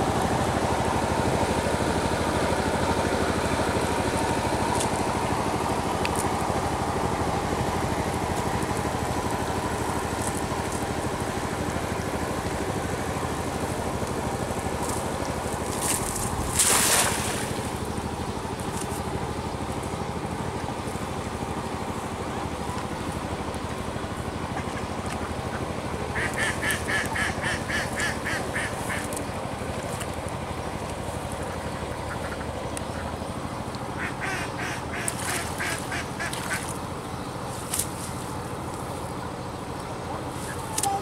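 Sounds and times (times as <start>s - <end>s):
steady low hum: 0.0s - 41.0s
cast net splashing in water: 15.7s - 17.8s
ducks quacking: 24.6s - 29.2s, 34.0s - 36.7s.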